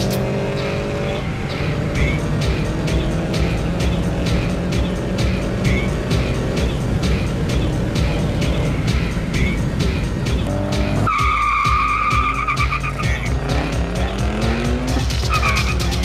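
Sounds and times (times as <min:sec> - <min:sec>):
background music with steady beat: 0:00.0 - 0:16.0
car engines accelerating hard: 0:00.0 - 0:16.0
tire squeal: 0:10.9 - 0:13.4, 0:15.2 - 0:16.0.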